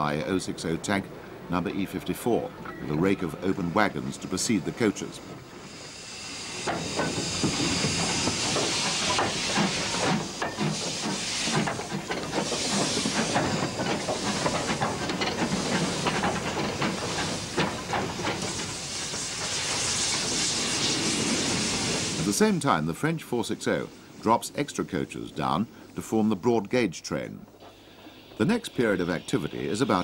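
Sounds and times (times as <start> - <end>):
steam hissing: 4.2 - 26.4, 27.6 - 30.0
clanks and clicks of wagons: 6.6 - 19.9.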